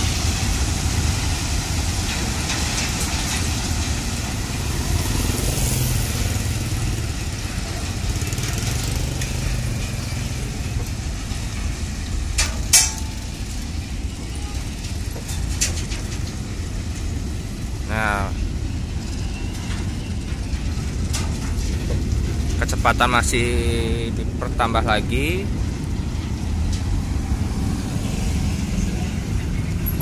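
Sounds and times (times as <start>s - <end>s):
train wagons rumbling and rattling: 0.0s - 30.0s.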